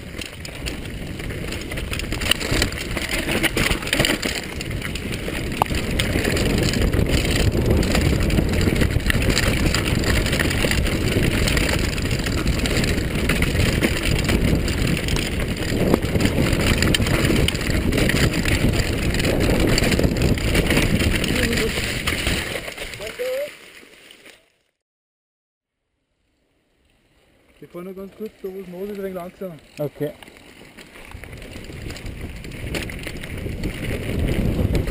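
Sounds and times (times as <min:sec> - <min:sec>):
wind buffeting microphone: 0:00.0 - 0:23.1, 0:31.0 - 0:34.9
bike knocking and rattling: 0:00.0 - 0:23.9, 0:27.5 - 0:34.9
bike tyres rumbling on dirt: 0:00.0 - 0:24.6, 0:26.5 - 0:34.9.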